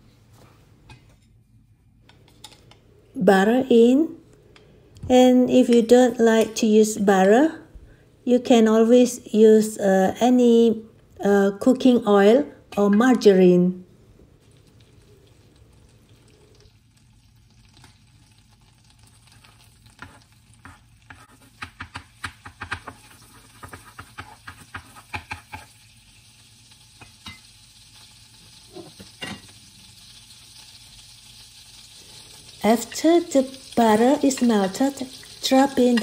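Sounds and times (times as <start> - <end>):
butter sizzling in a pan: 14.4 - 36.0
utensil scraping a pan: 19.2 - 21.7.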